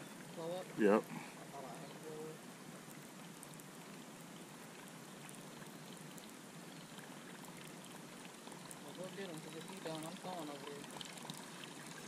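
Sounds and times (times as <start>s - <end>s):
water lapping at a boat: 2.4s - 12.0s.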